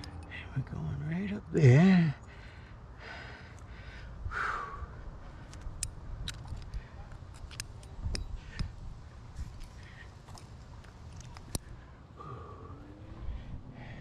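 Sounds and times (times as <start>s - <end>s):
climbing hardware clinking: 5.4s - 8.8s, 9.4s - 11.7s.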